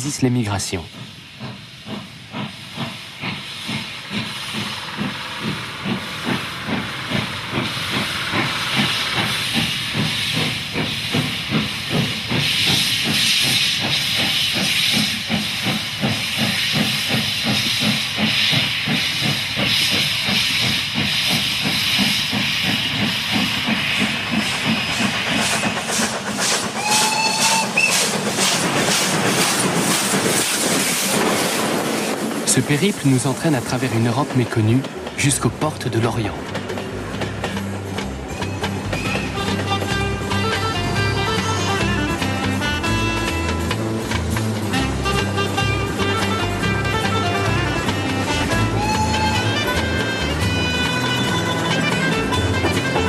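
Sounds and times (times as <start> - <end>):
hiss of steam: 0.0 - 53.0
steam locomotive chuffing: 0.0 - 53.0
steam whistle: 26.8 - 28.1, 44.7 - 53.0.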